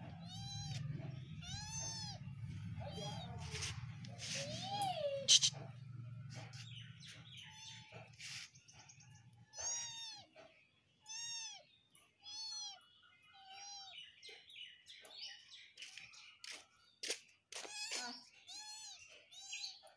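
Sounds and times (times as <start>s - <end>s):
kitten mewing: 0.0s - 5.7s, 9.5s - 10.3s, 11.1s - 11.6s, 12.2s - 12.8s.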